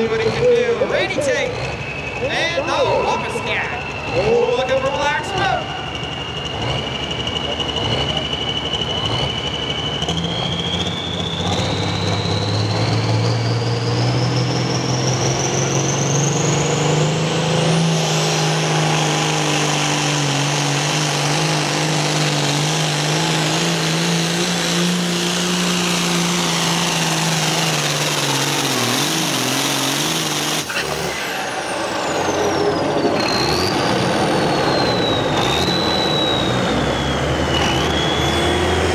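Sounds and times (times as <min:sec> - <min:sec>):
diesel engine revving: 0:00.0 - 0:38.9
turbo whistle: 0:01.7 - 0:12.9, 0:33.3 - 0:38.9.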